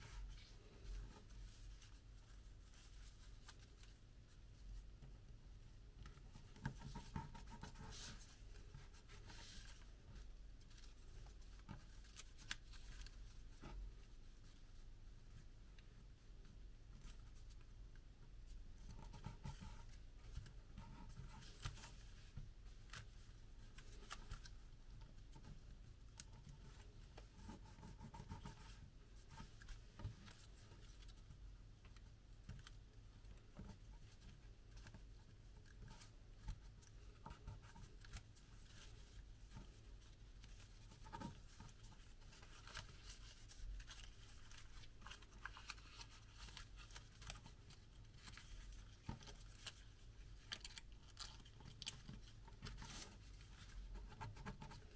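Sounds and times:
paper crinkling as folded: 36.8 - 54.9.

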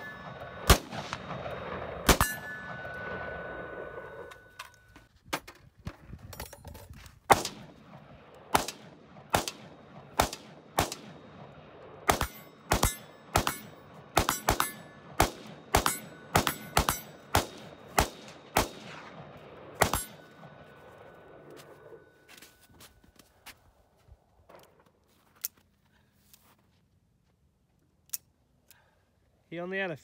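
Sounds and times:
rifle shots with echo: 0.0 - 4.3, 7.3 - 21.9.

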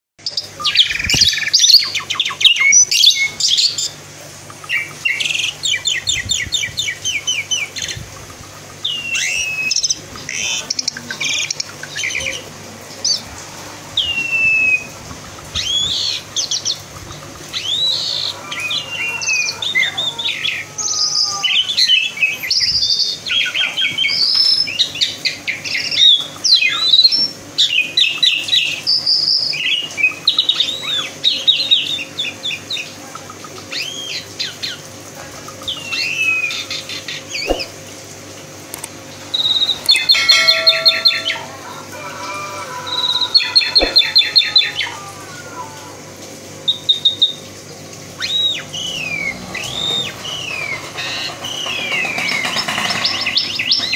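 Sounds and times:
starling singing: 0.2 - 4.0, 8.8 - 13.3, 14.0 - 16.8, 17.5 - 33.0, 39.3 - 45.9, 48.2 - 53.9.

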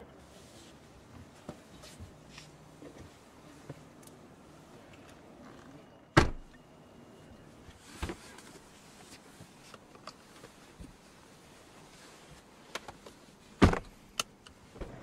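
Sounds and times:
car door shutting thud: 6.2 - 6.5, 13.6 - 13.9.

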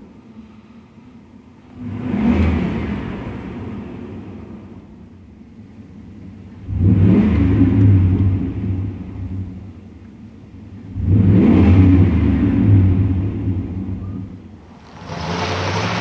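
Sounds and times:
pickup truck engine accelerating: 1.7 - 4.9, 10.7 - 16.0.

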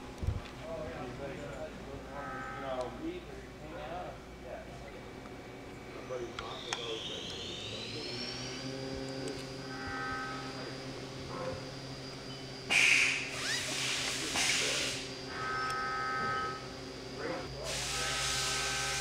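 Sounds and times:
steady low hum: 0.0 - 19.0
sharp hissing bursts: 12.7 - 15.1, 17.6 - 19.0.

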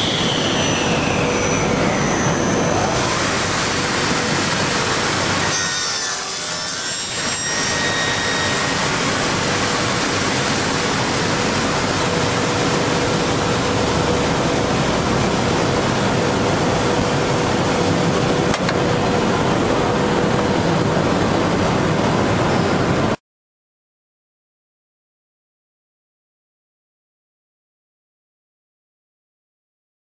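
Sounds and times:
circular saw blades running: 0.0 - 21.3.

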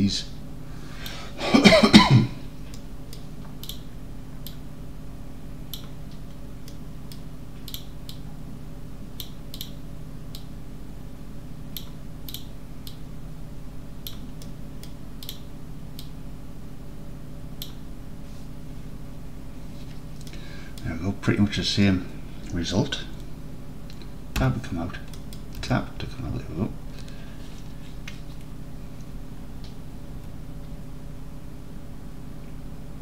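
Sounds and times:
low electrical hum: 0.0 - 33.0
computer mouse clicking: 2.7 - 4.6, 5.7 - 8.2, 9.2 - 10.5, 11.8 - 13.0, 14.0 - 16.2, 23.9 - 25.7.

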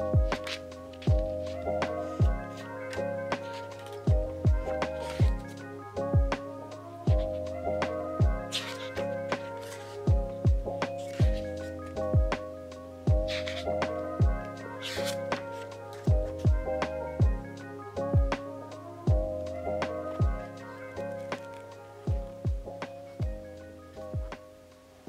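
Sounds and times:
background music with steady beat: 0.0 - 25.0
keyboard chords: 0.0 - 25.0
deep kick drums: 0.1 - 0.4, 1.1 - 1.4, 2.2 - 2.5, 4.1 - 5.5, 6.2 - 6.4, 7.1 - 7.4, 8.2 - 8.5, 10.1 - 11.5, 12.1 - 12.4, 13.1 - 13.3, 14.2 - 14.5, 16.1 - 17.5, 18.2 - 18.4, 19.1 - 19.4, 20.2 - 20.4, 22.1 - 23.5, 24.2 - 24.4.

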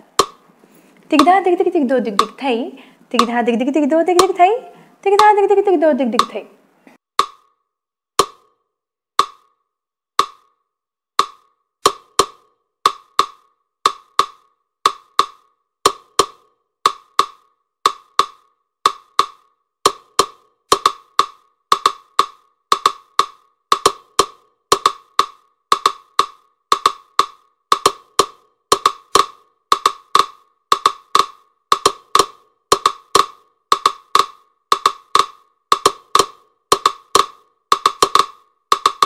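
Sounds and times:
dry percussion clicks: 11.2 - 39.0.

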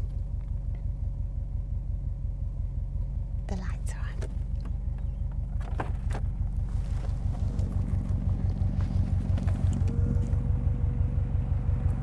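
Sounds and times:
car engine idling: 0.0 - 12.0
thin steady whine: 6.5 - 12.0.

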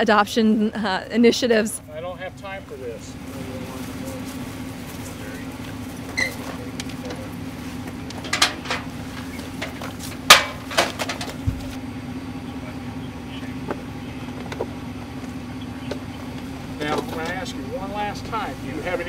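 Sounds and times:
steady hum: 0.0 - 19.0
metallic clanks and knocks: 8.0 - 11.8.

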